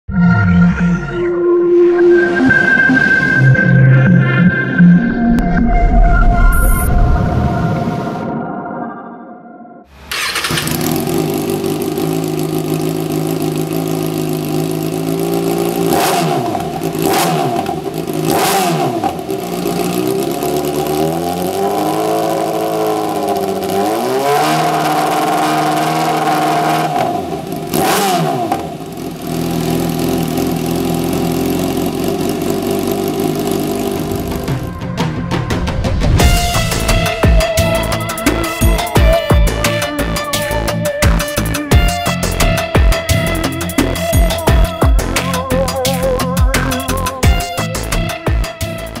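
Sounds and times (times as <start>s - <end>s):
motorcycle engine revving: 9.9s - 49.0s.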